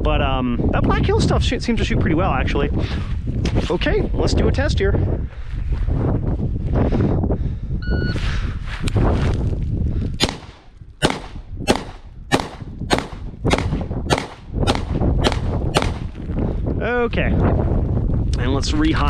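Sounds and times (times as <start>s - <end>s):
wind rumble on microphone: 0.0s - 19.0s
pistol shots: 10.2s - 16.1s.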